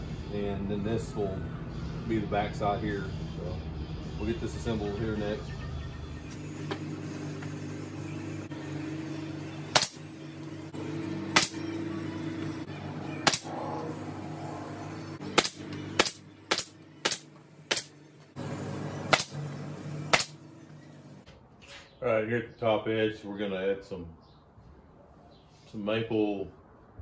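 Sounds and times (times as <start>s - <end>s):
nail gun firing into plywood: 9.7s - 10.0s, 11.4s - 11.6s, 13.2s - 13.5s, 15.3s - 17.9s, 19.1s - 19.4s, 20.1s - 20.4s.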